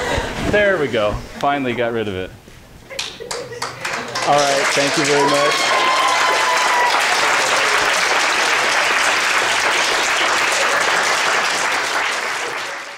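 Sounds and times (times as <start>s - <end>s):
students applauding: 3.3s - 12.9s.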